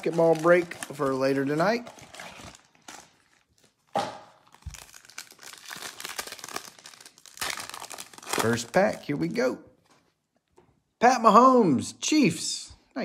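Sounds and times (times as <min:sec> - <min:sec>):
foil wrapper crinkling and tearing: 0:00.0 - 0:09.3.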